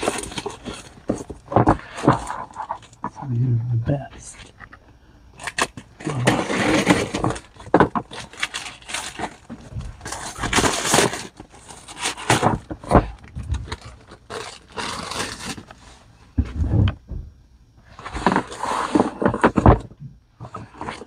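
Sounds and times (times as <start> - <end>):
plastic bag crinkling and tearing: 0.0 - 3.0, 5.4 - 15.8.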